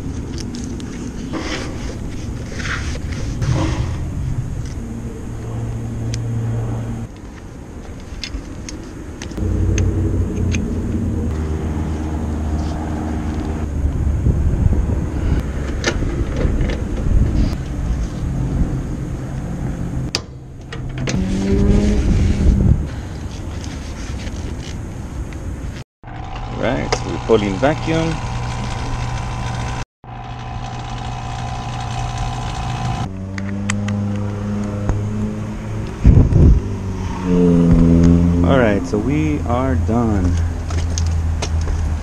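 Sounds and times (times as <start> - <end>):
motor humming: 26.0 - 33.1.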